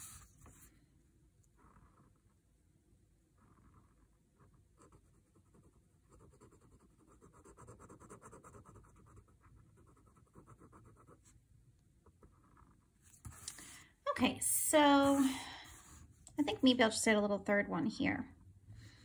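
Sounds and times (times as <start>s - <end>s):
pen scratching on paper: 3.5s - 11.4s.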